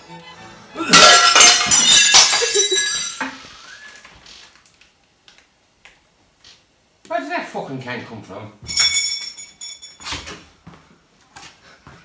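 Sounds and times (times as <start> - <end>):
glass shards tinkling: 0.9 - 3.3, 8.7 - 10.2
glass crash: 0.9 - 3.4.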